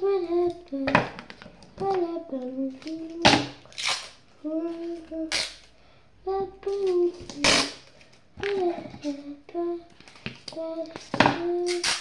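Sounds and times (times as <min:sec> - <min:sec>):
girl humming: 0:00.0 - 0:01.0, 0:01.8 - 0:03.4, 0:04.4 - 0:05.5, 0:06.2 - 0:07.8, 0:08.4 - 0:09.9, 0:10.5 - 0:12.0.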